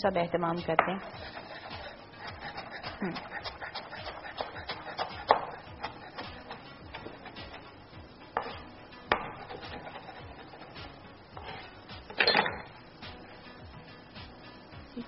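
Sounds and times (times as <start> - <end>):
knife chopping on wooden board: 0.8 - 7.7, 8.3 - 11.5.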